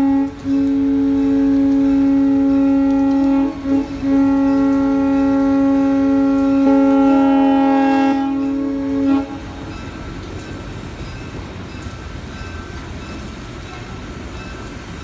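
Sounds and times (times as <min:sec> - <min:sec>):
steam locomotive chime whistle: 0:00.0 - 0:10.0.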